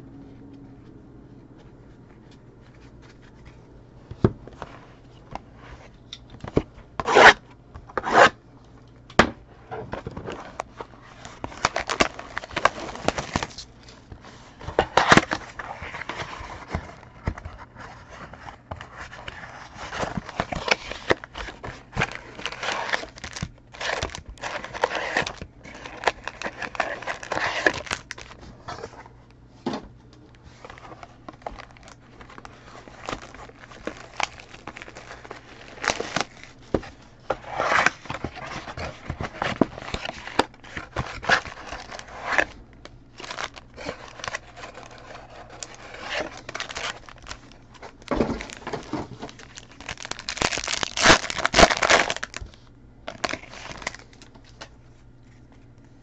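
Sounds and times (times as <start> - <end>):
cards rustling: 0.8 - 8.3, 9.9 - 29.2, 30.1 - 56.0
card packs ripping open: 10.0 - 14.0, 14.6 - 28.4, 30.6 - 54.6
wrapper crinkling: 10.1 - 28.4, 30.5 - 54.7.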